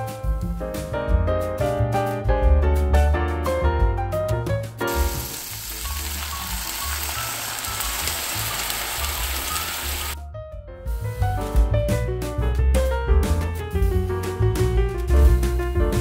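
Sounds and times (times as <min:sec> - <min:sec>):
piano background music: 0:00.0 - 0:16.0
cream sizzling in a frying pan: 0:04.9 - 0:10.2.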